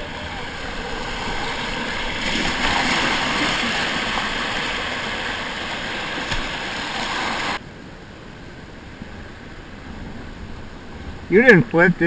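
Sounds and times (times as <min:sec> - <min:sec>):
whitewater rushing and splashing: 0:00.0 - 0:07.6
faint low rush of calm water: 0:00.0 - 0:12.0.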